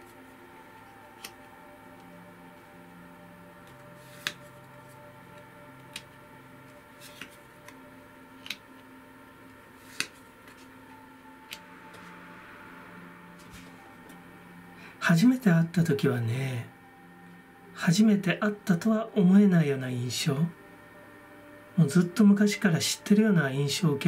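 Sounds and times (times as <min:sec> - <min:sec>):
faint steady hum: 0:00.0 - 0:24.0
cards clicking and snapping: 0:01.2 - 0:01.4, 0:03.6 - 0:04.5, 0:05.3 - 0:06.1, 0:07.0 - 0:08.9, 0:09.8 - 0:10.7.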